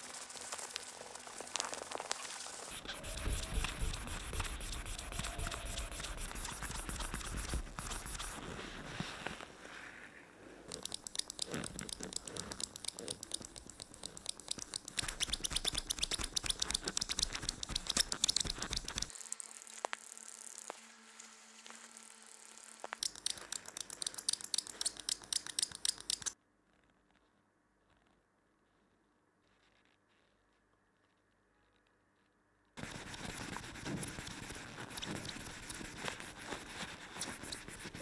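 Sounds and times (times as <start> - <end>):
scratchy rubbing on abrasive pad: 1.6 - 9.4, 10.7 - 19.1, 32.8 - 38.0.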